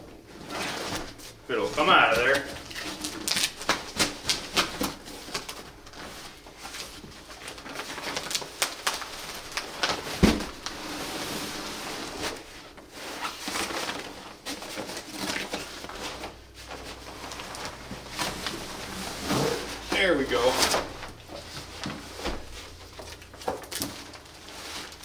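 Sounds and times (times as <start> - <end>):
fabric bag rustling: 0.4 - 25.0
cardboard box flaps scraping: 15.7 - 22.7.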